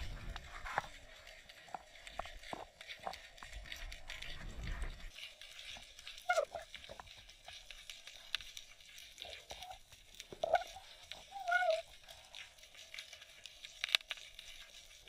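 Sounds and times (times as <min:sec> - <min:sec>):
low rumble: 0:00.0 - 0:00.8, 0:04.0 - 0:05.1
underwater clicks and crackles: 0:00.0 - 0:15.0
squeaky glide: 0:10.4 - 0:12.2.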